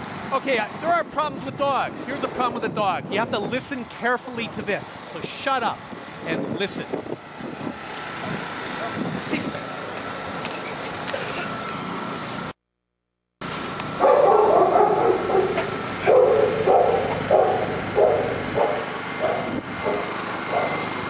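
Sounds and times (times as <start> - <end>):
dog barking: 14.0 - 20.9.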